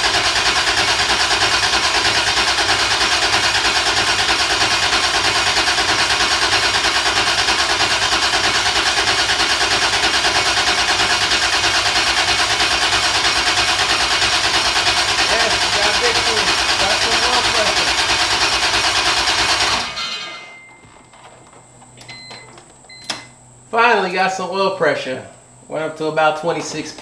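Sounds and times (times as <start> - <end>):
engine starter cranking: 0.0 - 20.5.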